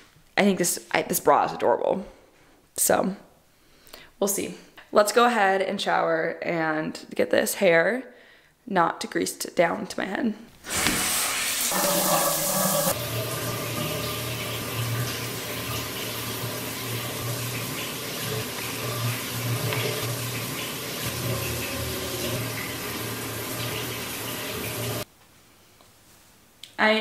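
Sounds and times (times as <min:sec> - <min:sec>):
shower water spraying onto tiles: 0:10.6 - 0:25.1.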